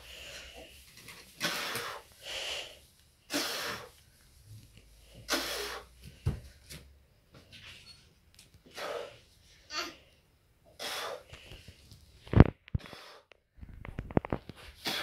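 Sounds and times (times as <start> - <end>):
man exhaling forcefully: 5.2 - 5.9.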